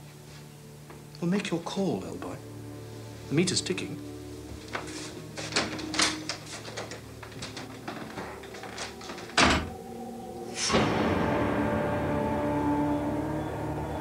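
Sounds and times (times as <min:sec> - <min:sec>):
sustained steady sound: 0:00.0 - 0:14.0
door shutting: 0:04.8 - 0:09.9, 0:10.5 - 0:11.4.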